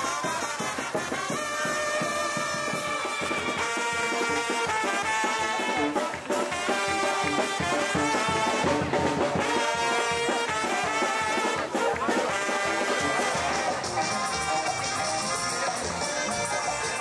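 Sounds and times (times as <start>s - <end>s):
brass band playing lively tune: 0.0s - 17.0s.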